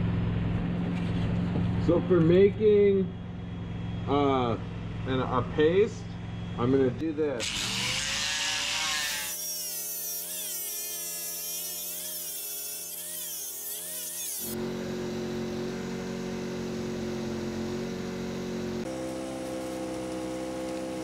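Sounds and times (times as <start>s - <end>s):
angle grinder grinding wood: 7.4s - 21.0s.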